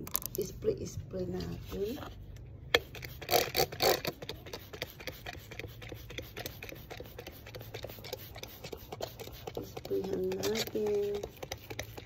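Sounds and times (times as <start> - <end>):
spray bottle spritzes: 2.8 - 9.6.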